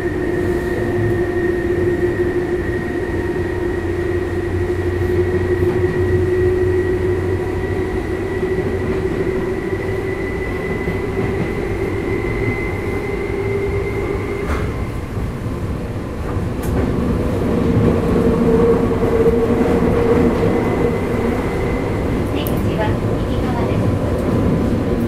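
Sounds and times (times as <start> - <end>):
train motor whine: 0.0 - 15.4
wheel and rail rumble: 0.0 - 25.0.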